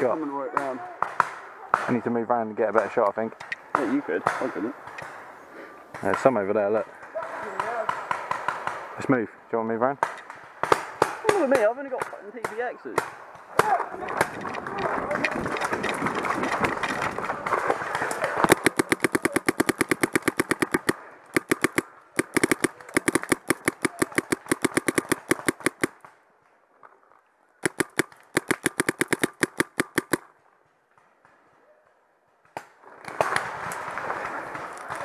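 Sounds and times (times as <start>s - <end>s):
paintball marker firing rapidly: 17.4s - 26.0s, 27.6s - 30.3s.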